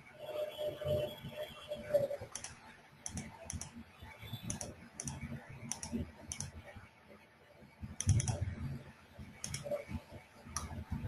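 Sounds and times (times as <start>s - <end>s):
computer keyboard clicking: 2.2s - 3.8s, 4.4s - 6.6s, 8.0s - 8.4s, 9.4s - 9.8s.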